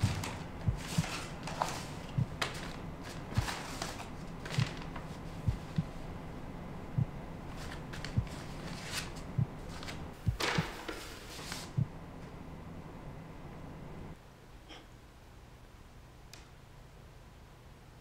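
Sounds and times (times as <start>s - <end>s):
paper rustling: 0.0s - 5.8s, 7.5s - 11.8s
low soft thumps: 5.4s - 6.0s, 6.9s - 7.2s.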